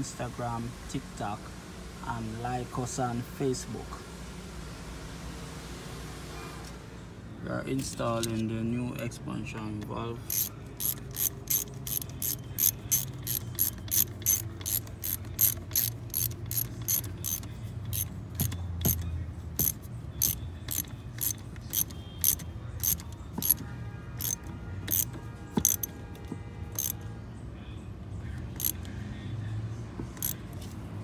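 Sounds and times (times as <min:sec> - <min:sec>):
socket ratchet clicking: 0:09.8 - 0:23.6, 0:24.2 - 0:26.0, 0:26.7 - 0:27.0, 0:28.5 - 0:28.9, 0:30.1 - 0:30.7.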